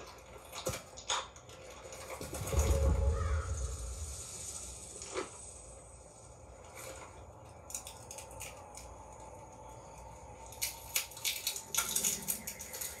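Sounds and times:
faint low hum: 0.0s - 13.0s
sharp crackling clicks: 7.5s - 9.4s, 10.4s - 13.0s.

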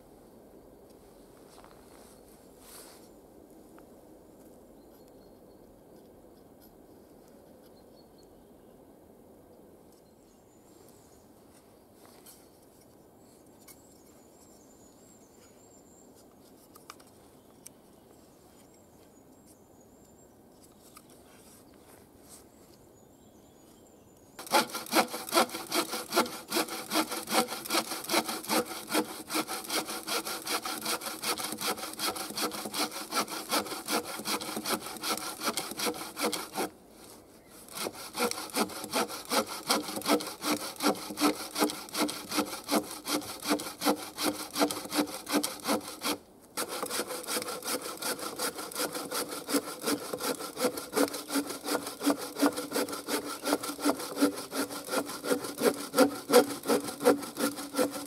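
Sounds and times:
bow saw cutting log: 24.4s - 36.7s, 37.6s - 58.0s.

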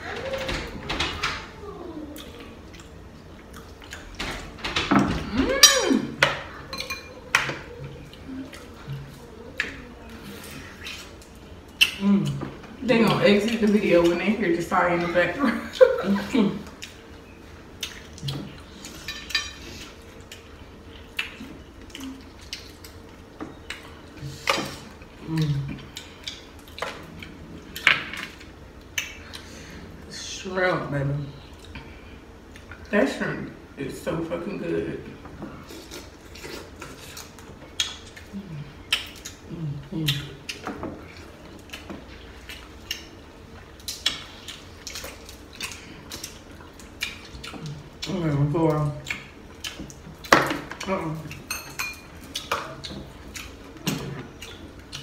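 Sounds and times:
dishes and cutlery clinking: 5.0s - 7.7s, 19.0s - 19.6s, 51.4s - 52.7s
dishware clinking: 6.7s - 7.2s, 51.5s - 52.1s.

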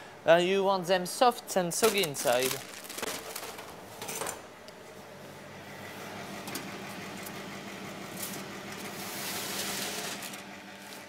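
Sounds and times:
oven fan humming: 0.0s - 11.0s.

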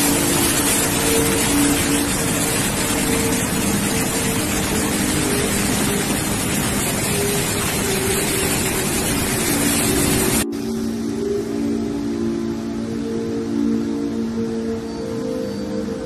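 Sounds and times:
flood river roaring: 0.0s - 11.7s.

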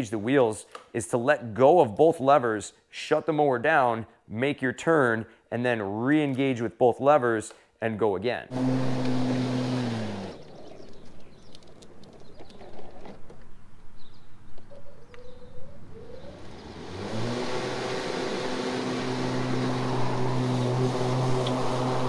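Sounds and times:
electric mower motor whining: 8.5s - 11.0s, 16.2s - 22.0s
lawn mower light clicks: 21.4s - 21.6s.

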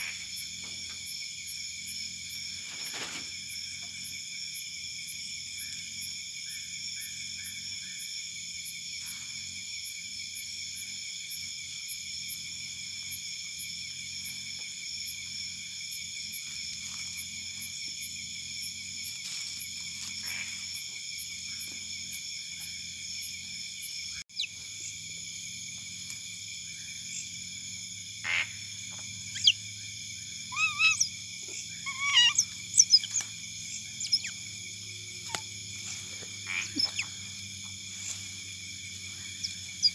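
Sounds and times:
night insects chorus: 0.0s - 39.9s
otters squeaking and chirping: 24.3s - 24.6s, 29.2s - 29.6s, 30.4s - 34.6s, 35.2s - 38.3s, 39.0s - 39.9s.

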